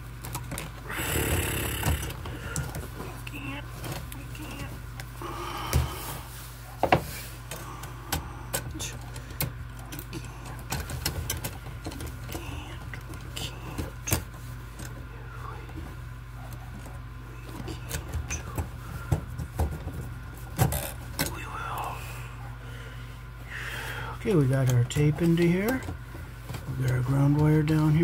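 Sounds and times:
steady low hum: 0.0 - 28.0
wires clicking and rattling in metal box: 7.4 - 15.0.

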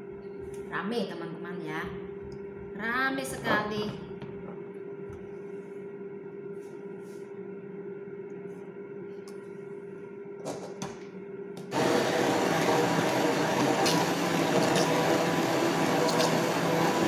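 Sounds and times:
stick blender whirring: 11.6 - 17.0.

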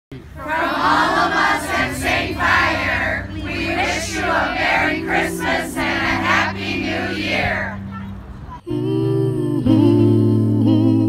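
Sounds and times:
steady low hum: 0.1 - 11.0
group singing in chorus: 0.4 - 7.7, 8.6 - 11.0.

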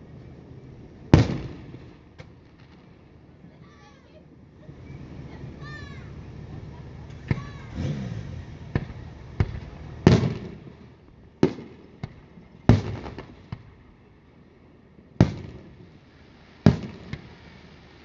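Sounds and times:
fireworks booming: 1.1 - 3.2, 7.0 - 13.9, 15.2 - 18.0
sharp firework cracks: 1.2 - 3.0, 7.2 - 13.8, 15.2 - 18.0
rolling echo: 4.8 - 14.1.

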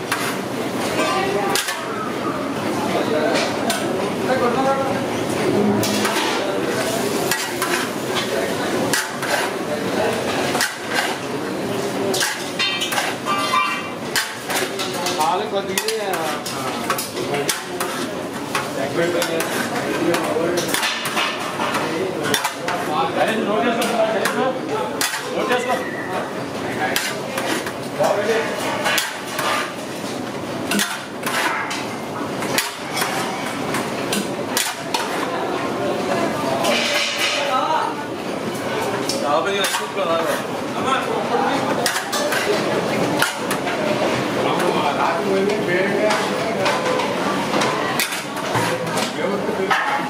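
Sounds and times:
metal spatula clanking in pan: 12.1 - 22.8, 28.8 - 29.7, 30.7 - 35.2.

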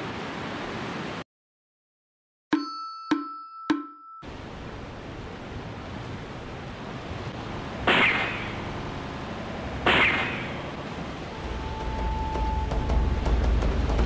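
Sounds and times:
sharp splashes: 7.8 - 8.7, 9.8 - 10.9.

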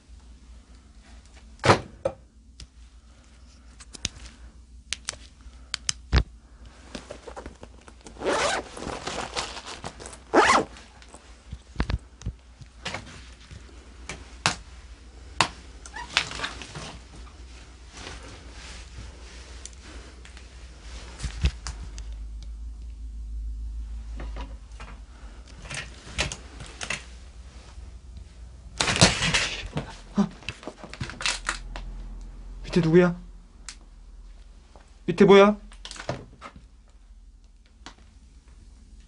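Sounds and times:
scraping rustles: 6.8 - 11.4.

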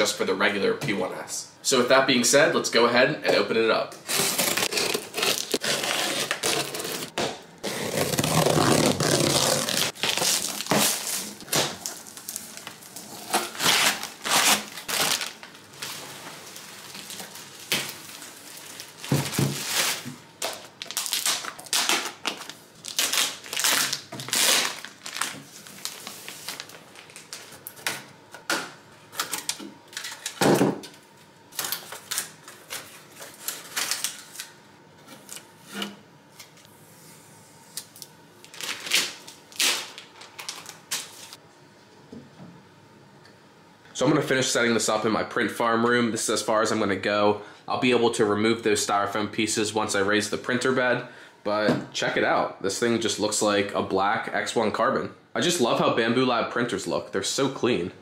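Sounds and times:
cardboard and plastic film rustling: 4.0 - 28.0, 31.6 - 34.5, 38.4 - 41.4.

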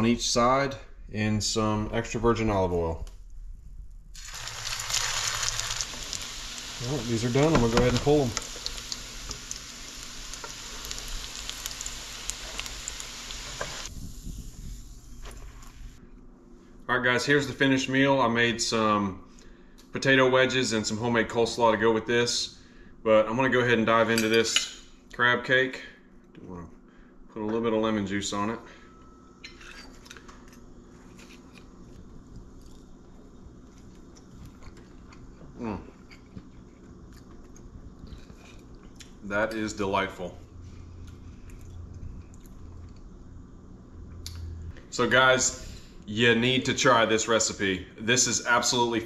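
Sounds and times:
food sizzling in oil: 4.2 - 16.0
fork scraping a plate: 29.4 - 30.3.

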